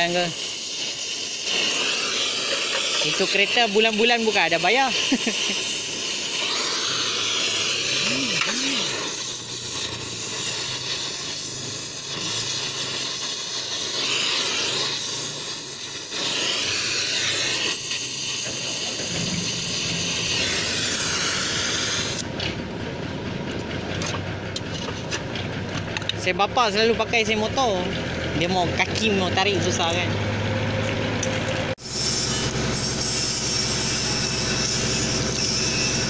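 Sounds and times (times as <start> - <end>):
gas welding torch hissing: 0.0 - 22.5, 31.7 - 36.0.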